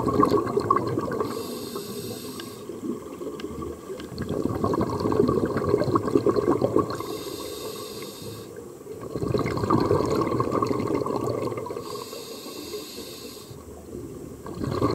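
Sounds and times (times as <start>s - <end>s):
bubbling exhales underwater: 0.0s - 1.6s, 2.6s - 7.2s, 8.9s - 12.1s, 13.9s - 14.9s
regulator hiss on inhale: 1.2s - 2.8s, 6.8s - 8.7s, 11.7s - 13.8s.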